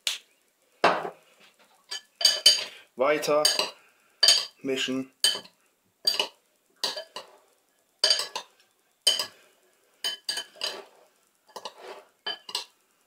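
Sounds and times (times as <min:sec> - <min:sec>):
spoons scraping ceramic bowl: 0:10.0 - 0:12.7.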